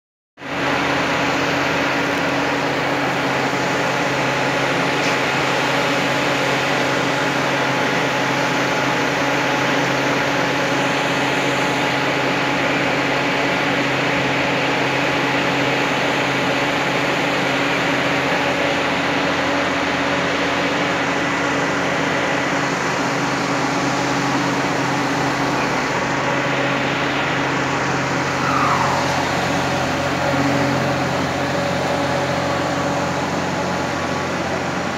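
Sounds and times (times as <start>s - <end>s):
mechanical drone with hiss: 23.3s - 34.9s
short falling squeal: 28.2s - 31.3s.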